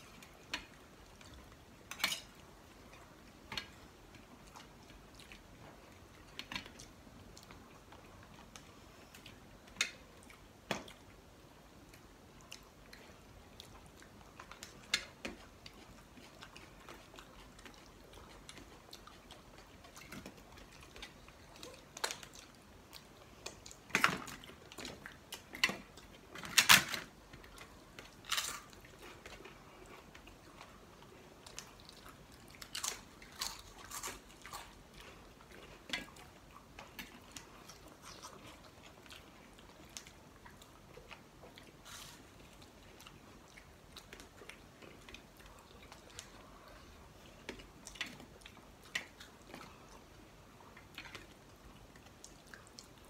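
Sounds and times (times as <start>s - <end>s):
chewing and biting: 27.4s - 53.0s.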